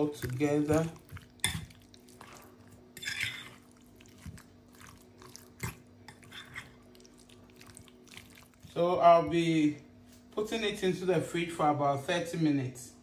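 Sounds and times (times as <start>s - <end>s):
wet squelching: 0.0s - 8.8s
fork scraping plastic bowl: 0.1s - 4.4s, 5.6s - 6.8s.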